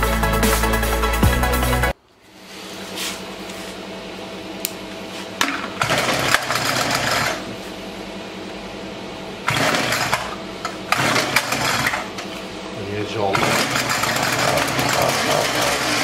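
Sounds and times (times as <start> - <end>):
small petrol engine running: 5.7 - 7.5, 9.4 - 12.2, 13.2 - 16.0.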